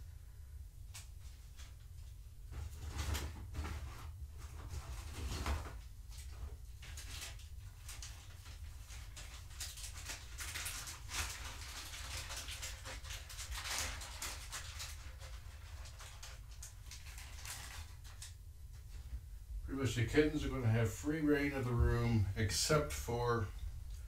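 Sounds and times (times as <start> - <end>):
rustling and scraping of objects: 0.8 - 24.0
steady low hum: 16.4 - 24.0.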